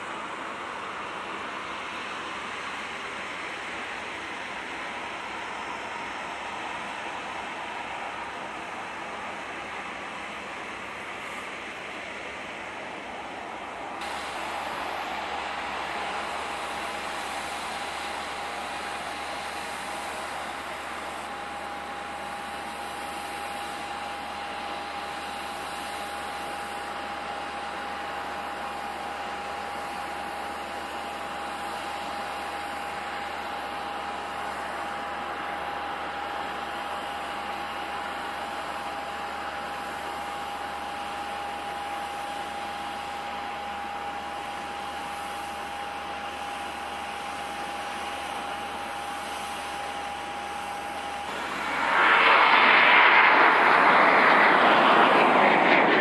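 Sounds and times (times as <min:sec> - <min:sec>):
distant jet engines at takeoff: 0:00.0 - 0:56.0.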